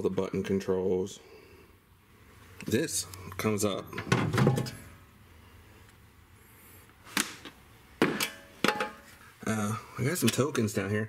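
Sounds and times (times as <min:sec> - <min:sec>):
metal tray clanking: 0:04.0 - 0:05.0, 0:08.0 - 0:09.1.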